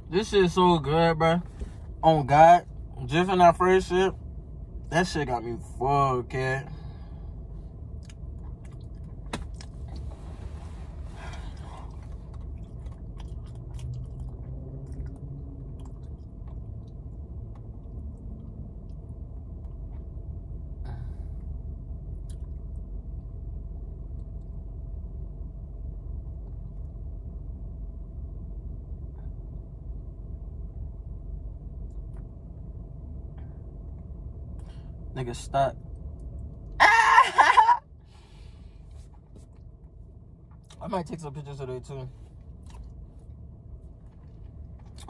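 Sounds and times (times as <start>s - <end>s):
low rumble in a car cabin: 0.0s - 45.0s
chewing with wet mouth clicks: 7.9s - 10.1s, 11.8s - 20.0s, 22.2s - 23.3s, 42.5s - 43.0s.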